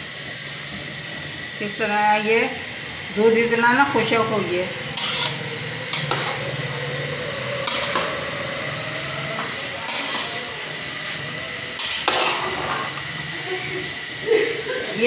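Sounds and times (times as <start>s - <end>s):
steady low hum: 0.0s - 15.0s
metal spoon scraping a pot: 4.9s - 6.6s, 7.6s - 8.1s, 9.9s - 10.4s, 11.8s - 12.9s.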